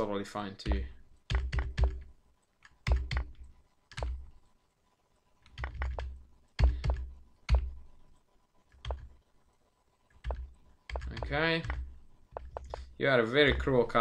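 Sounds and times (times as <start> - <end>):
computer keyboard keys tapping: 0.6 - 4.4, 5.4 - 7.9, 8.7 - 9.3, 10.1 - 14.0.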